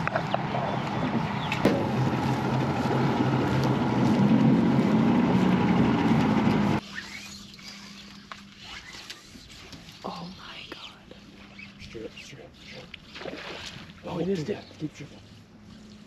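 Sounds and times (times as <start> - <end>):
outboard motorboat engine running: 0.0 - 6.8.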